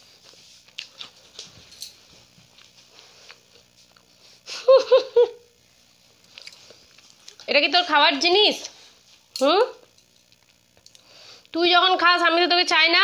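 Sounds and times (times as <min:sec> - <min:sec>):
faint scuffing and clicks: 0:00.2 - 0:04.2.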